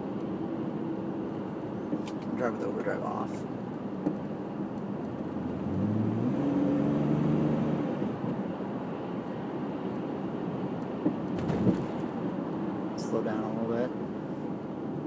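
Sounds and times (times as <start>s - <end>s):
road noise: 0.0s - 15.0s
car engine accelerating: 5.1s - 8.4s.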